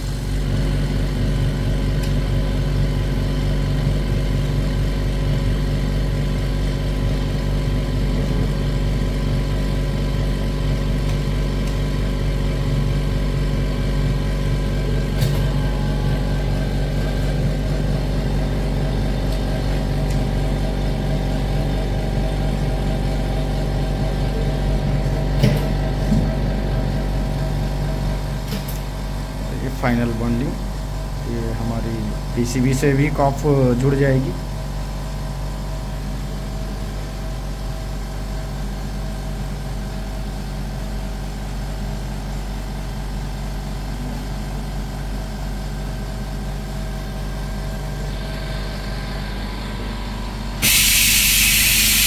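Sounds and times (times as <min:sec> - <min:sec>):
machinery humming: 0:00.0 - 0:34.8, 0:46.0 - 0:52.0.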